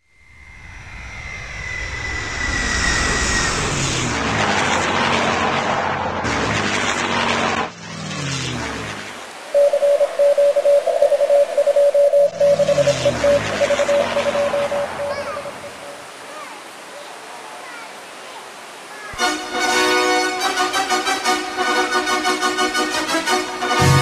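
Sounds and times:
airplane engine whine: 0.0s - 16.2s
rapid beeps: 9.6s - 16.0s.

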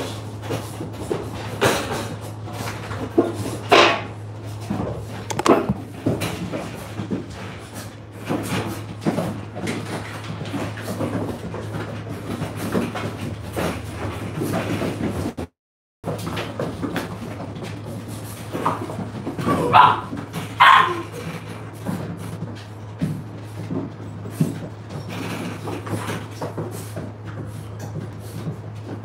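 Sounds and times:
handling knocks and clatters: 0.0s - 15.4s.

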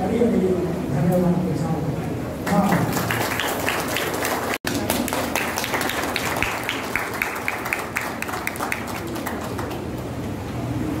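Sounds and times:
audience applauding: 2.5s - 10.2s.

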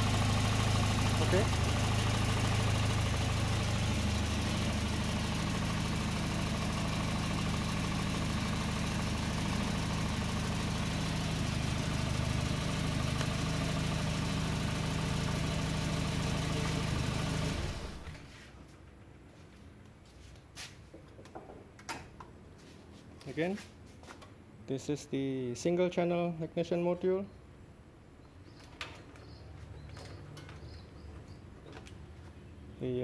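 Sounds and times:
car engine idling: 0.0s - 18.3s.

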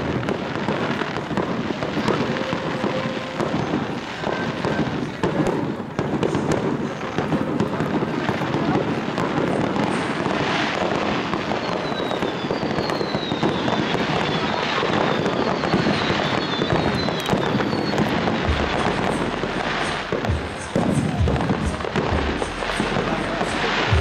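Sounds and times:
falling firework whistles: 0.0s - 24.0s
fireworks crackling and popping: 0.0s - 24.0s
deep firework thumps: 16.6s - 24.0s.

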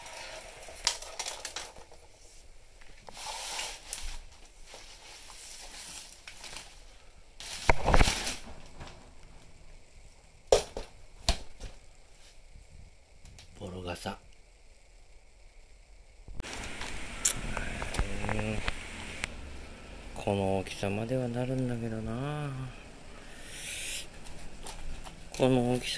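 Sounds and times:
plastic sheeting crinkling: 3.0s - 9.2s.

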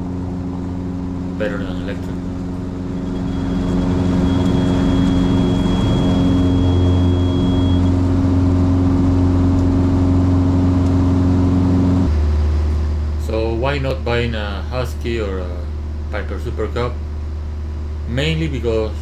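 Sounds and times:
aircraft piston engine and propeller: 0.0s - 14.0s
faint thin high tone: 2.8s - 7.9s.

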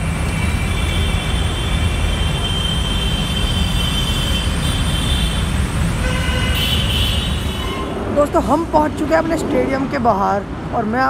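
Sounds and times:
idling car and motorbike engines: 0.0s - 7.5s
horn-like tone: 6.0s - 8.0s.

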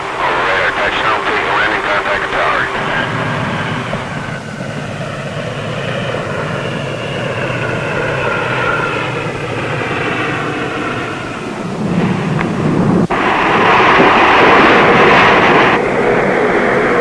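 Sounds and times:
faint rising whine: 0.0s - 17.0s
propeller airplane engines: 0.0s - 17.0s.

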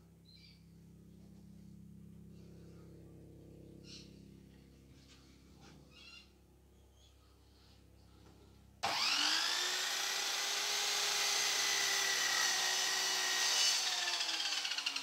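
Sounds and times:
power tool motor whining: 8.8s - 15.0s.

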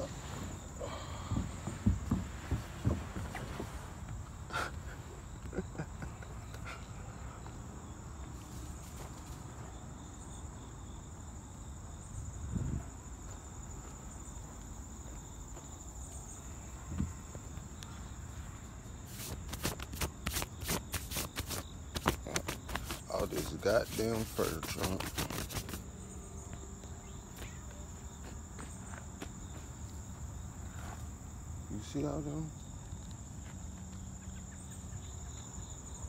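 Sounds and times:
insects trilling: 0.0s - 36.0s
dull thumps: 1.0s - 4.2s, 19.2s - 25.8s.

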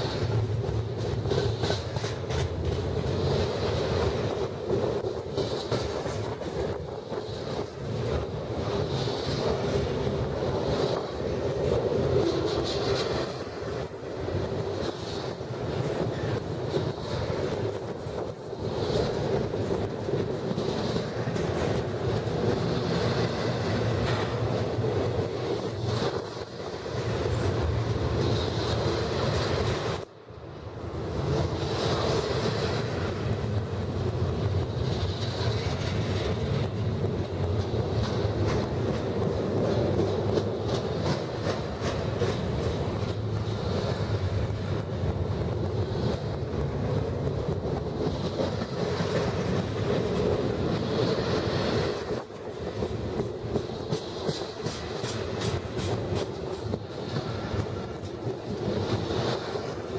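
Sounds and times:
train wheels rumbling on rails: 0.0s - 59.9s
light clacks: 46.9s - 59.6s.

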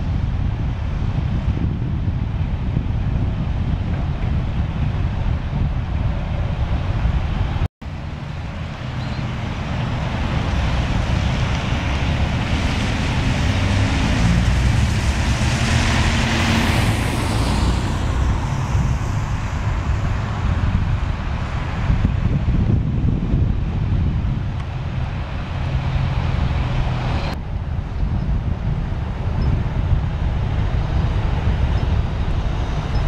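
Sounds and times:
wind buffeting microphone: 0.0s - 33.0s
vehicle passing: 7.6s - 27.4s.

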